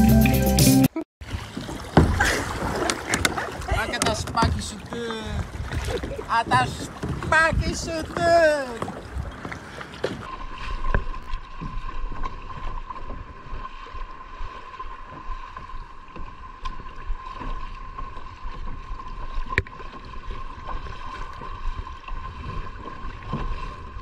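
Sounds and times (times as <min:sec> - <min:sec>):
paddles splashing in water: 0:01.2 - 0:24.0
water wash: 0:01.2 - 0:24.0
wind: 0:01.2 - 0:24.0.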